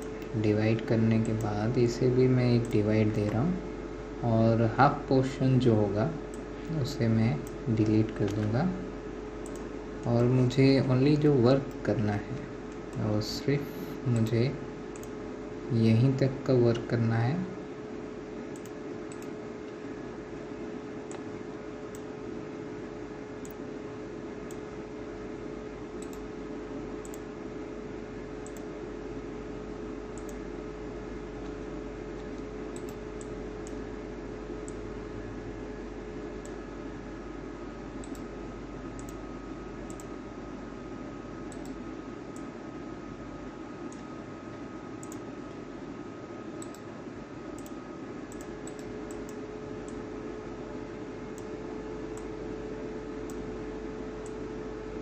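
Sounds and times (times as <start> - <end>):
background hiss and hum: 0.0 - 55.0
computer mouse clicks: 2.6 - 3.5, 7.4 - 8.6, 9.4 - 11.9, 13.9 - 15.2, 18.5 - 19.8, 21.0 - 22.1, 23.4 - 23.6, 26.0 - 26.3, 27.0 - 27.3, 28.4 - 28.7, 30.1 - 30.5, 32.2 - 33.8, 34.6 - 34.9, 38.0 - 38.3, 38.9 - 39.2, 39.9 - 40.2, 41.5 - 42.5, 43.8 - 44.1, 45.0 - 45.6, 46.6 - 46.9, 47.6 - 50.1, 51.4 - 52.4, 53.2 - 53.5.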